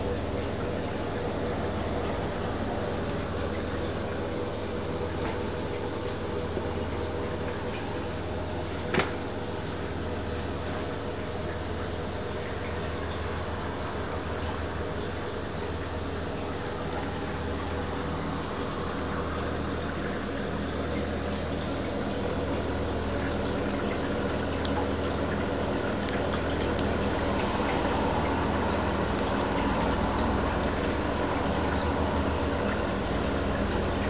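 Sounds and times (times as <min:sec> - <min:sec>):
low electrical hum: 0:00.0 - 0:34.0
moving water wash: 0:00.0 - 0:34.0.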